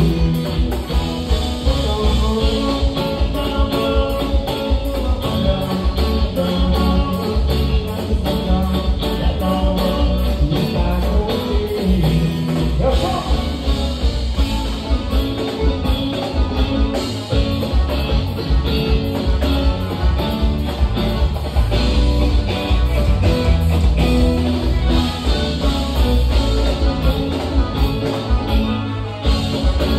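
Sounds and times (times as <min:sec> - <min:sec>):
man singing into a microphone: 0:00.0 - 0:13.8
electric guitar: 0:00.0 - 0:29.9
heavy bass: 0:00.0 - 0:29.9
drum beat: 0:10.8 - 0:29.9.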